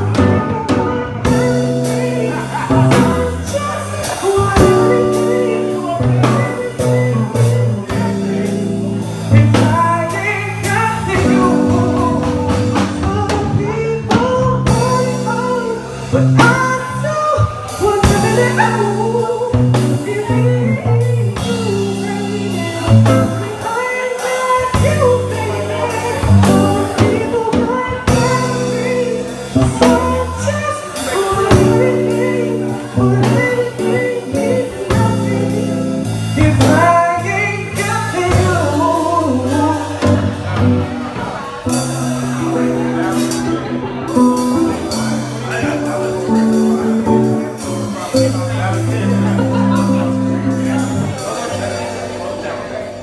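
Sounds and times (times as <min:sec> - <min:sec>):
live band playing: 0:00.0 - 0:53.0
man singing: 0:00.0 - 0:53.0.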